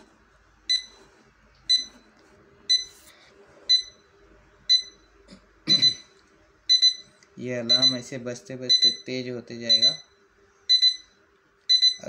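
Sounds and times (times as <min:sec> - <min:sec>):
alarm clock beeping: 0:00.7 - 0:01.0, 0:01.7 - 0:02.0, 0:02.7 - 0:03.0, 0:03.7 - 0:04.0, 0:04.7 - 0:05.1, 0:05.7 - 0:06.1, 0:06.7 - 0:08.1, 0:08.7 - 0:10.1, 0:10.7 - 0:12.0.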